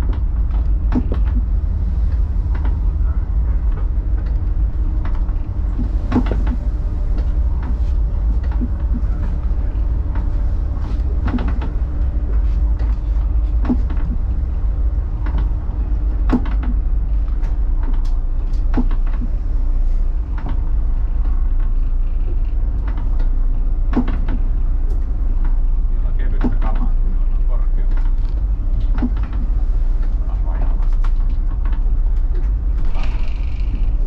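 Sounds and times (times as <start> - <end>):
sharp knocks and rattles: 0.0 - 3.0, 3.6 - 19.4
boat engines droning: 0.0 - 34.0
steady hum: 0.0 - 34.0.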